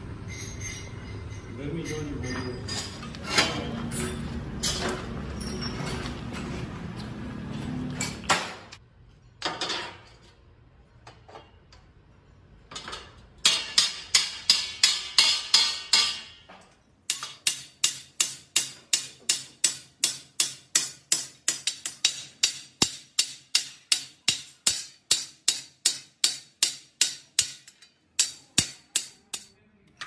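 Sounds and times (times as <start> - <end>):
hammer striking steel: 13.4 - 16.5, 17.1 - 29.5.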